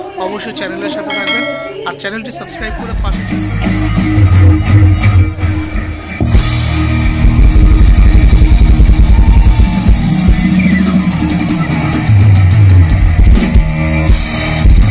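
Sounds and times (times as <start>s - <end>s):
rock music: 2.6s - 14.9s
fast drumming: 6.3s - 14.9s.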